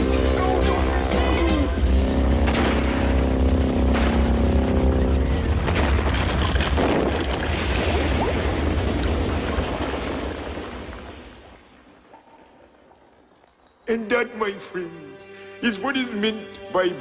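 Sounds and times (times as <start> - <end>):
heavy low boom: 1.8 - 11.6
rock crashing rumble: 2.5 - 13.0.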